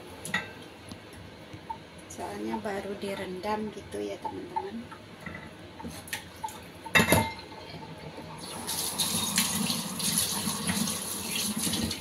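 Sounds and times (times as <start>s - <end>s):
kitchen tap running: 7.6s - 12.0s.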